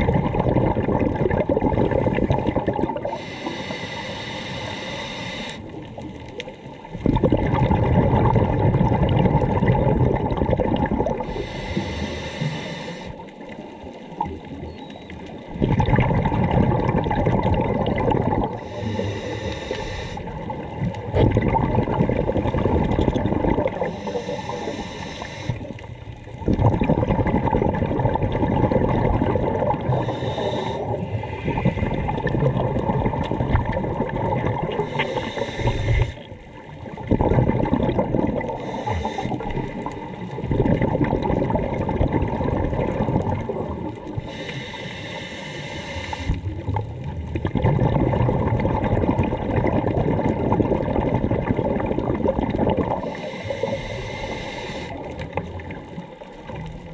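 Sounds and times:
bubbling exhale underwater: 0.0s - 44.7s, 45.8s - 56.9s
regulator hissing inhale: 3.1s - 5.8s, 11.2s - 13.3s, 18.6s - 20.4s, 23.8s - 25.9s, 29.9s - 32.2s, 34.7s - 36.4s, 38.5s - 39.6s, 44.2s - 46.4s, 53.0s - 55.1s.

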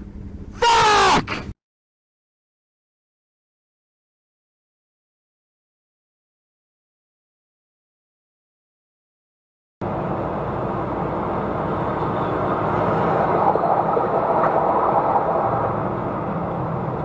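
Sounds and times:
truck engine and road noise: 0.0s - 1.6s, 9.8s - 17.0s.

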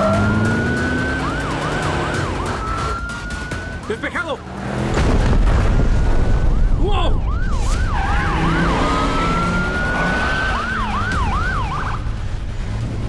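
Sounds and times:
police siren yelping: 0.0s - 4.4s, 6.3s - 12.0s
engine and road rumble: 0.0s - 13.0s.

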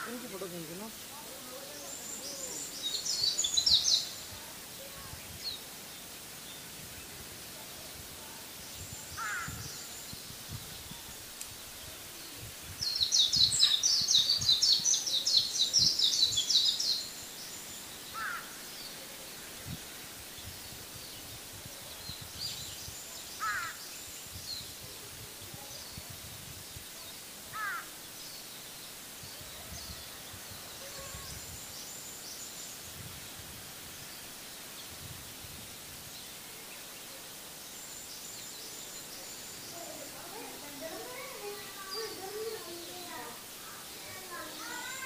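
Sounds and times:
rapid high-pitched bird chatter: 40.9s - 45.0s.

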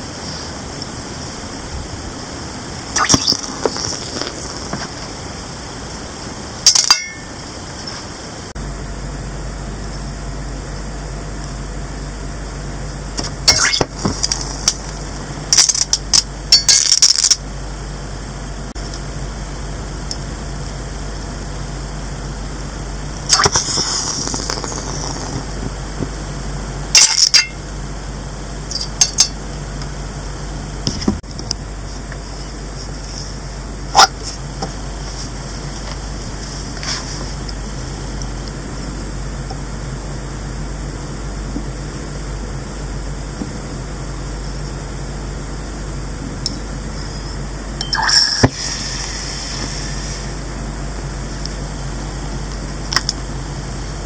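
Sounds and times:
sizzling hiss: 0.0s - 8.5s, 23.3s - 26.4s, 47.9s - 50.5s
steady low hum: 0.0s - 54.0s
metal popping in water: 13.5s - 14.0s.

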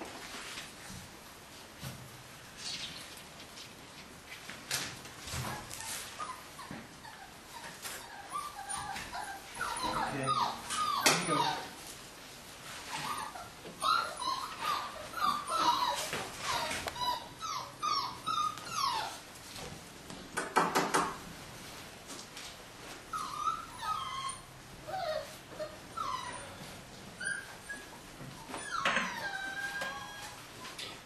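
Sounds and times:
puppies whimpering and yipping: 5.3s - 11.9s, 12.7s - 19.4s, 23.0s - 31.0s.

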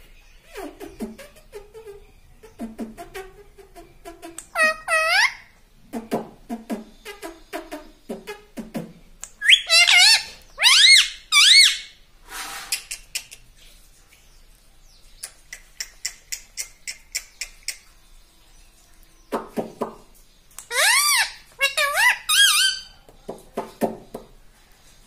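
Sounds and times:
parakeet mumbling: 2.4s - 5.4s
parakeet whistled squawks: 9.4s - 12.0s.

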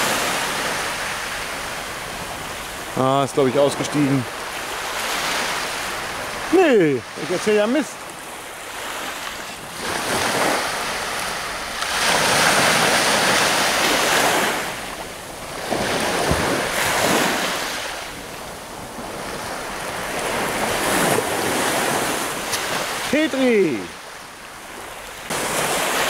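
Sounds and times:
surf breaking on beach: 0.0s - 26.0s
wind buffeting microphone: 8.0s - 23.0s.

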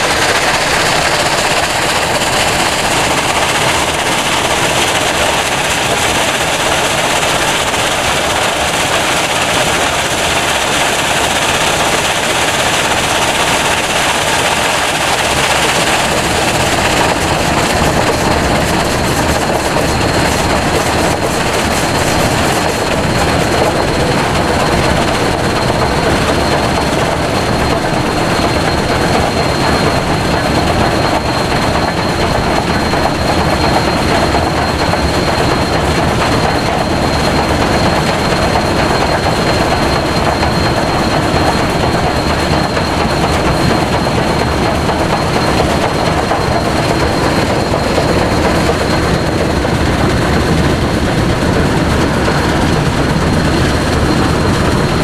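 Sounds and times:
rushing wind: 0.0s - 55.0s
steam locomotive running: 0.0s - 55.0s.

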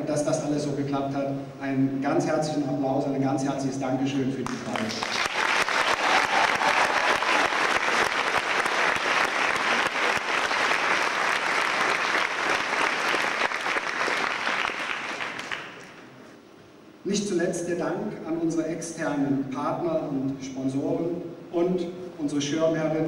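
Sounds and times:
audience applauding: 4.4s - 16.0s.

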